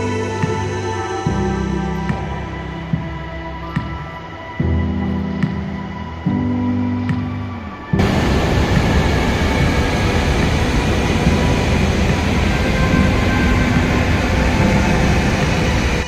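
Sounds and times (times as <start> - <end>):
waterfall rushing: 7.0 - 16.0.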